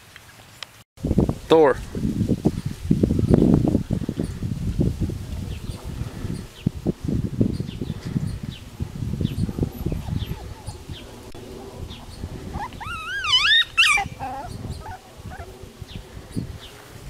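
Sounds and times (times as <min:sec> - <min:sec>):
dog whining: 0:09.8 - 0:11.2, 0:12.5 - 0:15.5.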